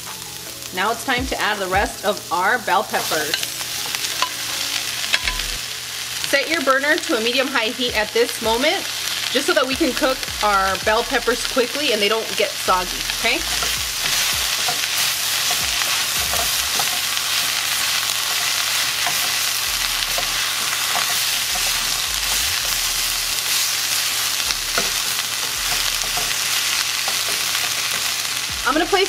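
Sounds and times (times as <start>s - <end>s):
vegetables sizzling in hot oil: 0.0s - 29.0s
spatula tossing in wok: 10.8s - 28.8s.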